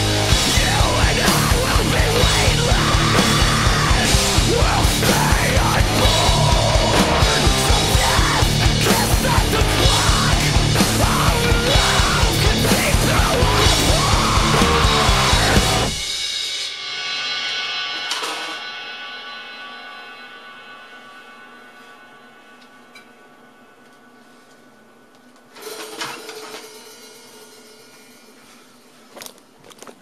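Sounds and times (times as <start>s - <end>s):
metalcore song with yelled vocals: 0.0s - 22.9s
crashing cymbals: 0.0s - 25.0s, 25.6s - 29.0s.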